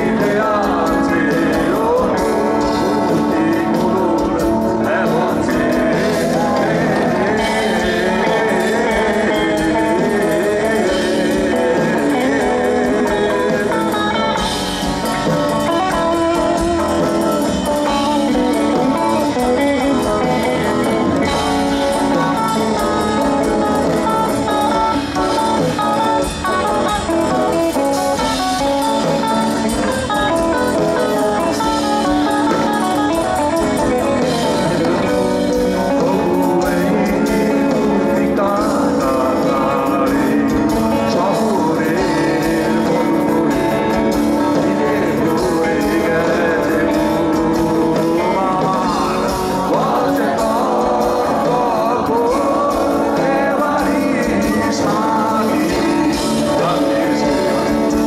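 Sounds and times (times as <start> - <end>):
electric guitar: 0.0 - 58.0
live rock band playing: 0.0 - 58.0
man singing: 0.0 - 58.0.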